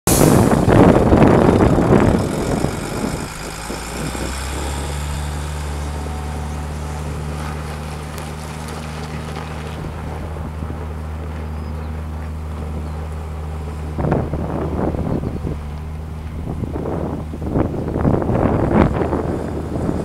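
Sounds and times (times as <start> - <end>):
loud rush of noise: 0.0 - 6.8
dump truck diesel engine: 0.0 - 20.0.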